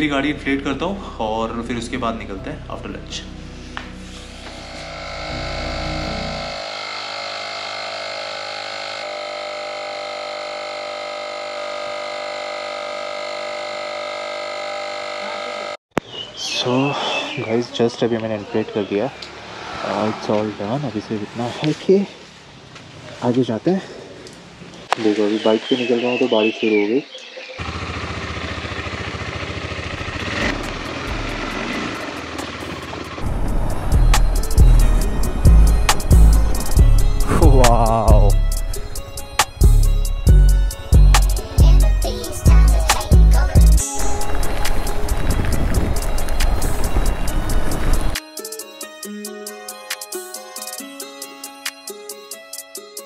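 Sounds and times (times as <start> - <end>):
motorcycle engine running: 3.8 - 15.8, 27.6 - 48.2
tyre inflator compressor buzzing: 3.8 - 15.8, 27.6 - 48.2
deep low rumble: 33.2 - 38.8.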